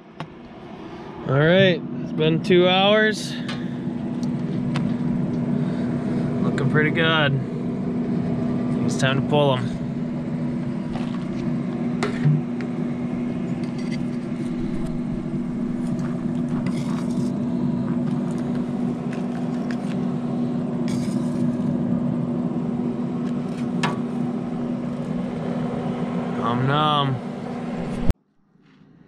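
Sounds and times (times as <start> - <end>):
fan motor humming: 0.0 - 28.2
spatula scraping metal grate: 13.5 - 15.0, 15.6 - 17.4, 20.9 - 21.5.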